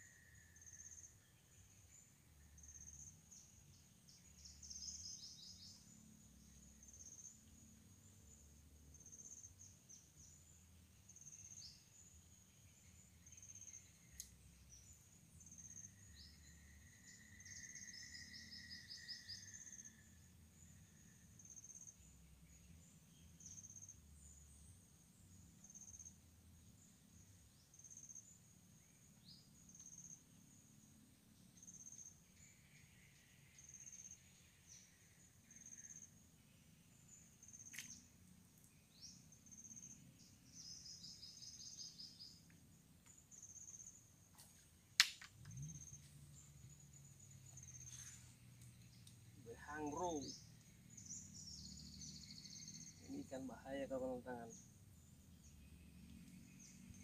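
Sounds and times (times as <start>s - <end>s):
insect and bird chirps: 0.0s - 57.0s
sharp click: 37.6s - 38.0s, 45.0s - 45.6s.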